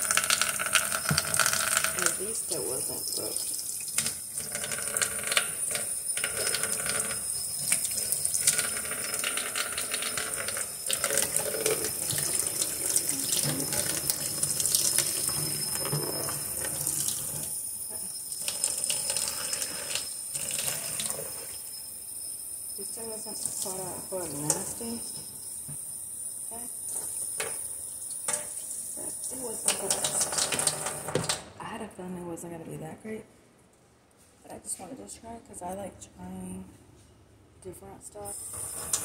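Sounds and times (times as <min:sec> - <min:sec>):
tap water running into sink: 0:00.0 - 0:17.5, 0:18.3 - 0:21.6, 0:26.9 - 0:31.5, 0:38.3 - 0:39.0.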